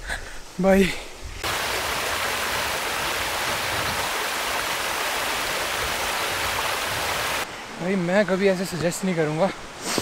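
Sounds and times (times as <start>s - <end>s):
running water rushing: 1.4s - 7.5s.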